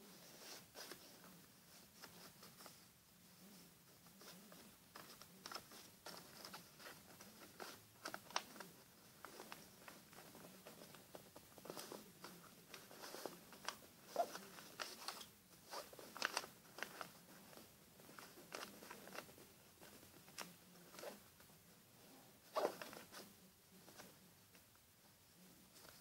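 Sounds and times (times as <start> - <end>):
paper rustling and crinkling: 0.1 - 21.3
paper crackles: 3.5 - 21.3.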